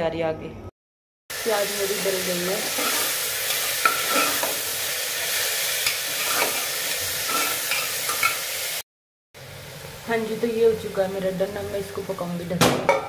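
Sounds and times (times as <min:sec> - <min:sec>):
onions sizzling in oil: 0:01.3 - 0:08.8, 0:09.4 - 0:12.5
spoon scraping and tapping pot: 0:02.8 - 0:04.6.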